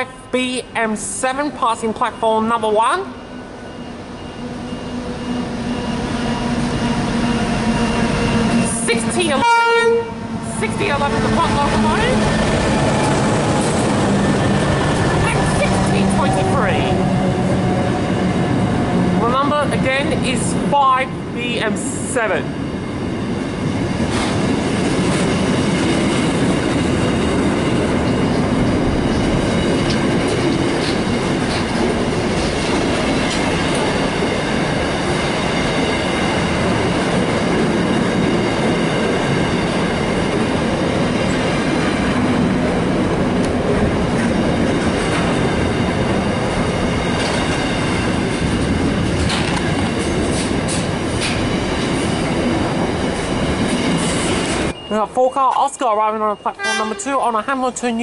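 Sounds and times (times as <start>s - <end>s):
freight train wheels rumbling: 0.0s - 58.0s
train wheel clicks: 48.3s - 52.1s.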